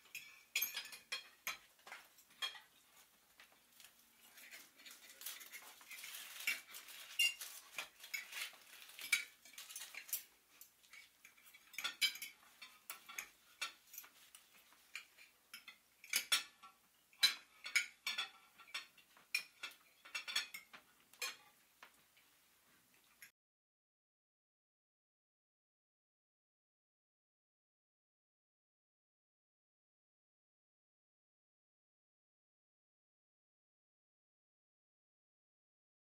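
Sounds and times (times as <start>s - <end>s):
cutlery and dishes clinking: 0.0s - 22.2s.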